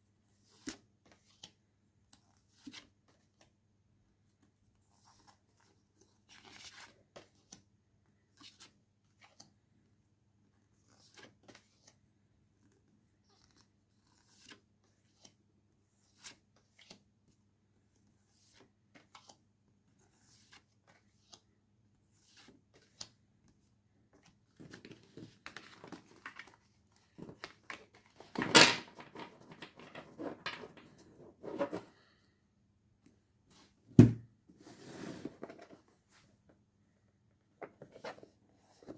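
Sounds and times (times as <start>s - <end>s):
cards shuffling and sliding: 13.4s - 15.3s, 22.1s - 23.6s
thump: 33.9s - 34.3s.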